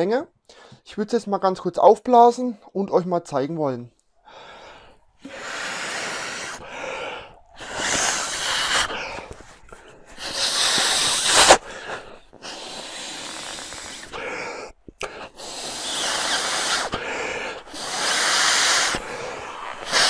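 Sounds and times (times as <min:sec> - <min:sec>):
breath intakes: 0:00.4 - 0:00.9, 0:04.1 - 0:20.0
man blowing into a valve: 0:05.2 - 0:14.3, 0:15.0 - 0:20.0.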